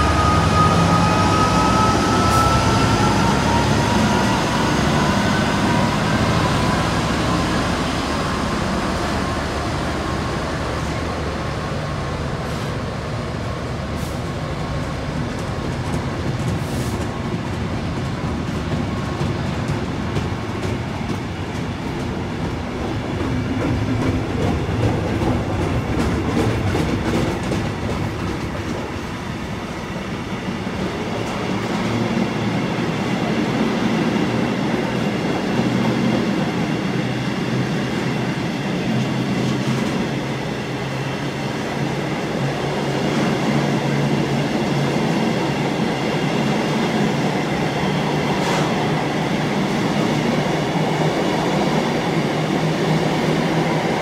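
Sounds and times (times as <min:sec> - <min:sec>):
train wheels clattering over rail joints: 0:14.8 - 0:29.2.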